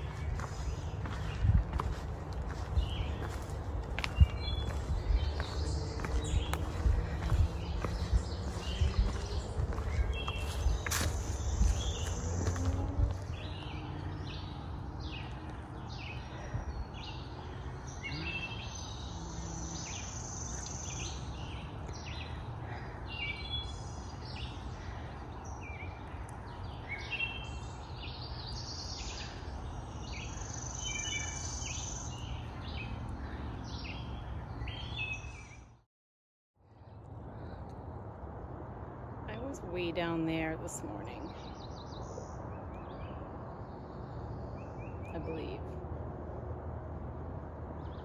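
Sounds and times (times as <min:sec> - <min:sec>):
steady low rumble: 0:00.0 - 0:18.3
songbirds chirping and trilling: 0:00.0 - 0:35.8, 0:36.6 - 0:48.0.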